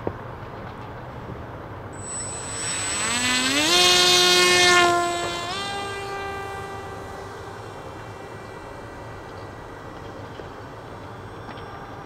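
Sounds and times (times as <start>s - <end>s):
electric motor and propeller whine: 2.0s - 12.0s.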